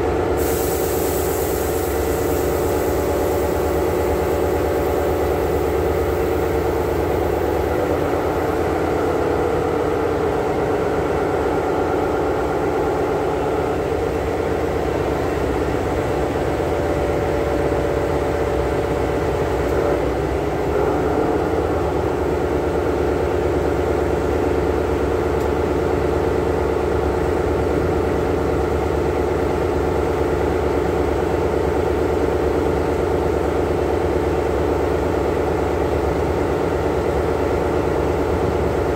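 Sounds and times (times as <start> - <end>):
diesel locomotive idling: 0.0 - 38.9.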